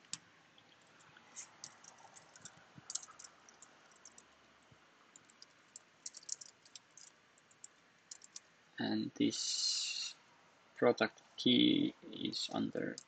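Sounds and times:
computer keyboard typing: 1.4s - 4.3s, 5.1s - 8.5s.

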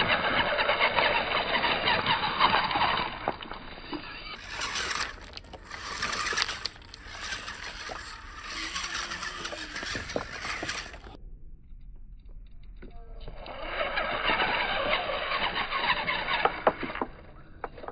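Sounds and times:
electric motors whining: 0.0s - 11.2s, 13.3s - 17.9s
tyres clattering over stones: 0.1s - 11.2s.

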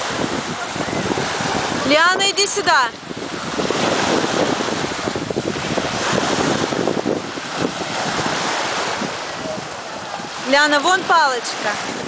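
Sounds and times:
small waves breaking on sand: 0.0s - 12.0s
wind buffeting microphone: 0.0s - 12.0s.

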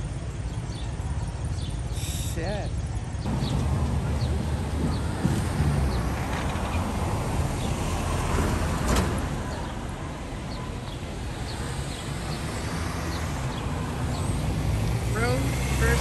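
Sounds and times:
general hiss: 1.9s - 2.8s.

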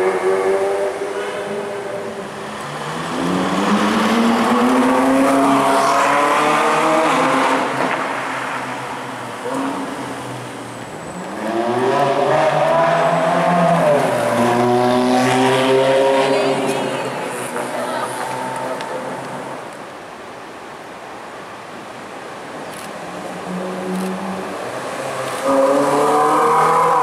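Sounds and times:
sports car engines accelerating: 0.0s - 19.6s.

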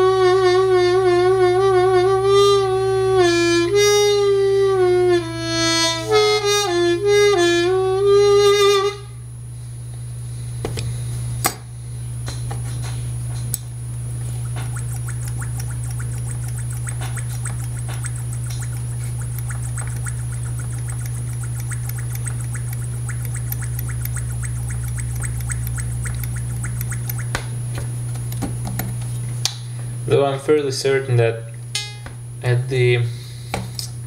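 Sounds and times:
electrical mains hum: 0.0s - 34.0s
faint high whine: 14.2s - 27.6s
small ticks and clicks: 14.4s - 27.5s.

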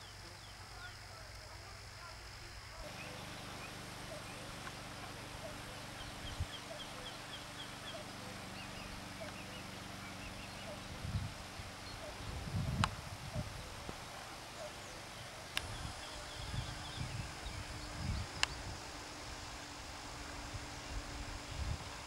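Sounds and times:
steady outdoor hiss: 0.0s - 22.0s.

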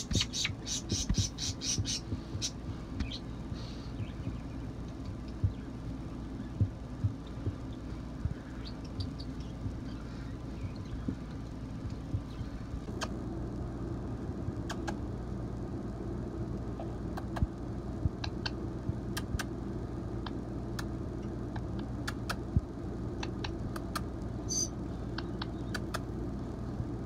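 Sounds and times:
steady low hum: 0.0s - 27.0s
parrot beak clicks: 14.6s - 15.0s, 25.2s - 26.1s
parrot squeak: 24.5s - 24.7s.

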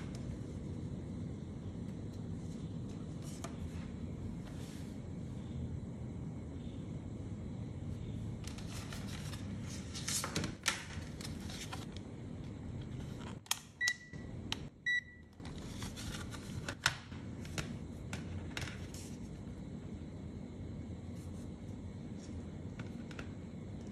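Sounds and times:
short meter beeps: 13.8s - 15.3s.

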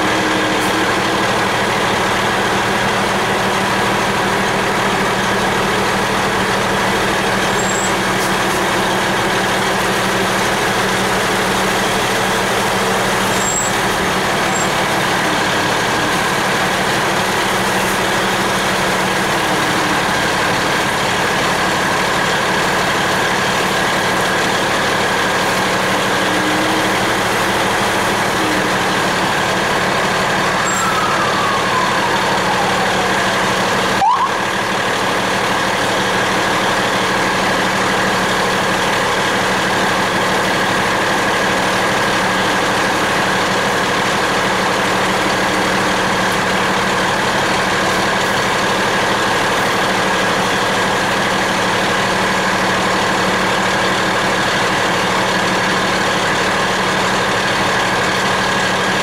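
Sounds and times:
truck engine running: 0.0s - 59.0s
rising siren whoop: 30.1s - 34.8s
faint falling siren tone: 30.4s - 34.6s.

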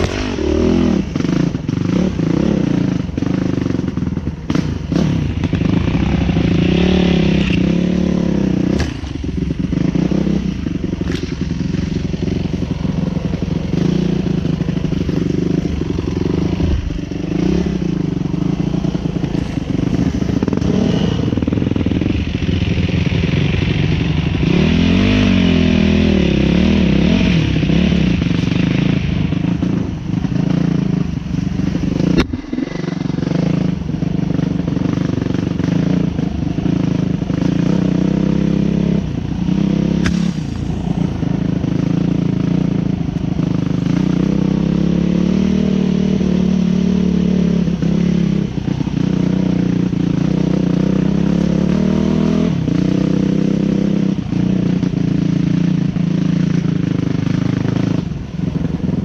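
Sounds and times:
motorcycle engine revving: 0.0s - 59.0s
sharp knock: 40.0s - 40.8s.

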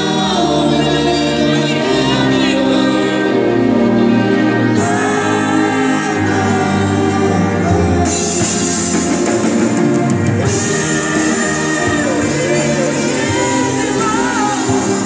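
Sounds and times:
live band playing: 0.0s - 15.0s
man singing: 10.5s - 15.0s.

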